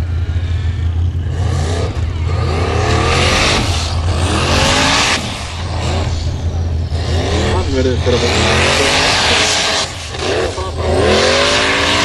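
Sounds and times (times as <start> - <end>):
steady low drone: 0.0 - 12.0
engine revving hard: 1.1 - 12.0.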